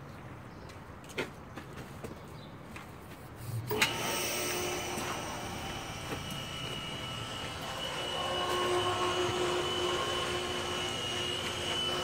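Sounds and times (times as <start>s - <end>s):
lower hum: 3.4s - 12.0s
machinery hum with high whine: 3.4s - 12.0s.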